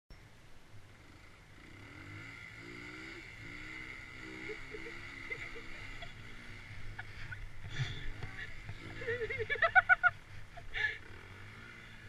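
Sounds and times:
dirt bike engine revving: 0:01.0 - 0:12.0
quad engine idling: 0:04.4 - 0:12.0.

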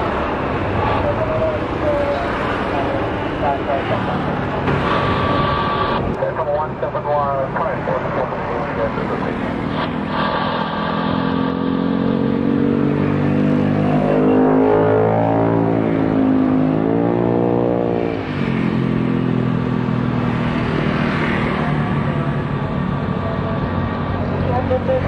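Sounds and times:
engine revving: 0:08.5 - 0:22.8.

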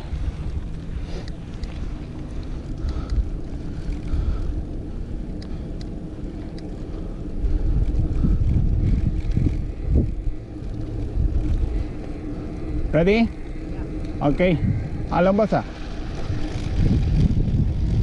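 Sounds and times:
bike tyres rattling on gravel: 0:00.0 - 0:18.0
wind buffeting microphone: 0:00.0 - 0:18.0.

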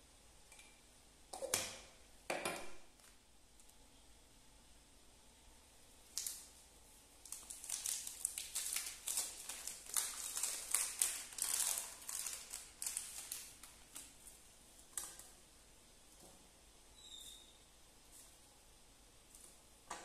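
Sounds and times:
plastic wrapper crinkling: 0:06.1 - 0:06.6, 0:07.2 - 0:14.4.

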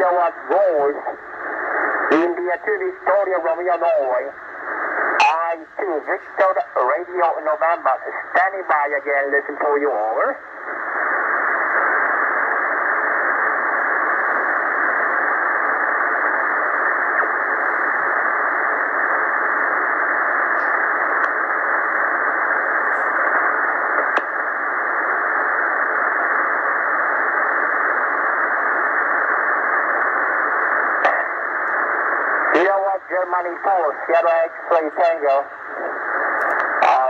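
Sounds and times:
shortwave radio noise hissing: 0:00.0 - 0:37.0
faint radio clicks: 0:10.7 - 0:37.0.

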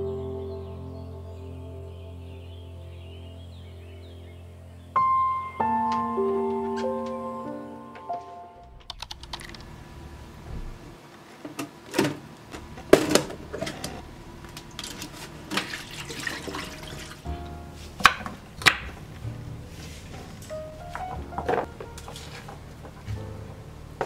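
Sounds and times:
soft background music: 0:00.0 - 0:08.8, 0:16.2 - 0:24.0
potatoes splashing in water: 0:14.8 - 0:17.3.

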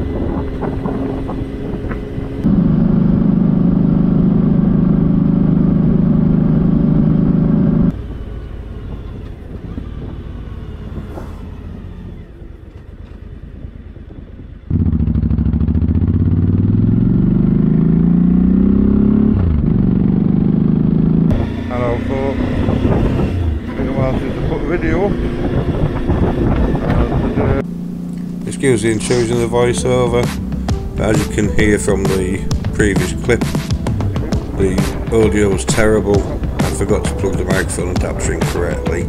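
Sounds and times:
vehicle engine running: 0:00.0 - 0:39.0.

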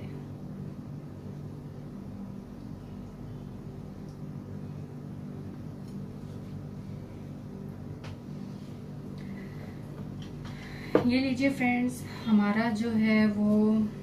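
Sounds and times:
low machine hum: 0:00.0 - 0:14.0.

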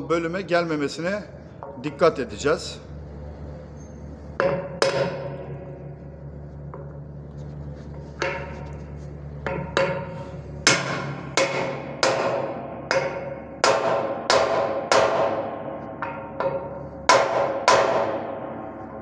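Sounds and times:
hammer striking metal: 0:04.4 - 0:05.6, 0:08.2 - 0:08.8, 0:09.4 - 0:18.9.

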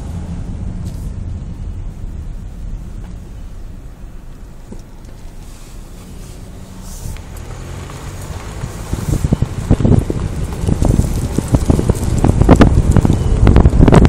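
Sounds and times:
car cabin rumble: 0:00.0 - 0:14.0
wind buffeting microphone: 0:06.2 - 0:14.0.

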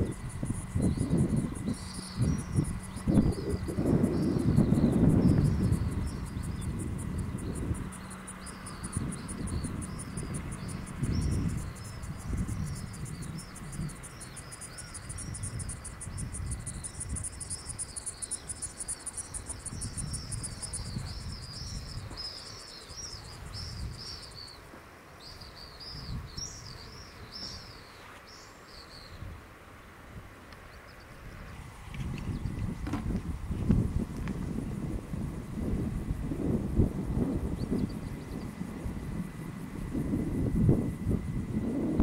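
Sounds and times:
bird chirping: 0:00.0 - 0:24.6
wind rumble on microphone: 0:00.0 - 0:28.0, 0:28.7 - 0:42.0
insect buzzing trill: 0:00.0 - 0:29.2, 0:30.9 - 0:42.0.

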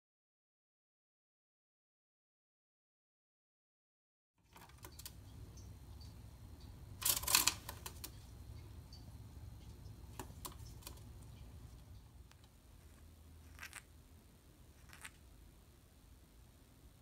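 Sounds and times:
low steady hum: 0:04.4 - 0:17.0.

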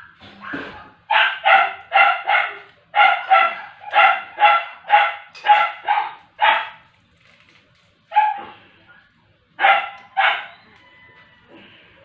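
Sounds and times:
dog barking: 0:00.4 - 0:06.9, 0:08.1 - 0:08.6, 0:09.6 - 0:10.6.

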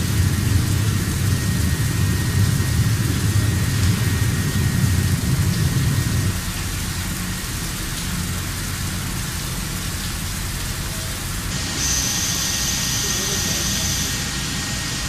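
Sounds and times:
heavy low rumble: 0:00.0 - 0:07.4
coolant spray hissing: 0:00.0 - 0:15.0
lathe machine noise: 0:11.5 - 0:15.0.

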